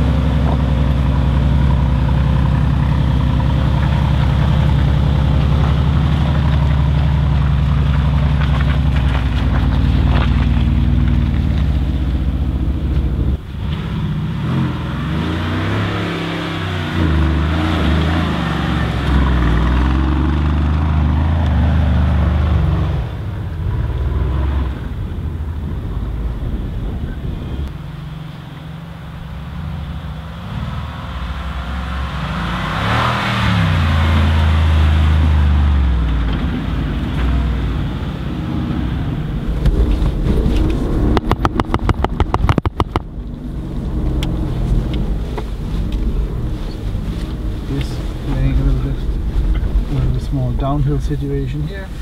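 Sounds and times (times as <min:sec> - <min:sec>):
engine revs rising and falling: 0:13.6 - 0:25.0, 0:30.4 - 0:42.4.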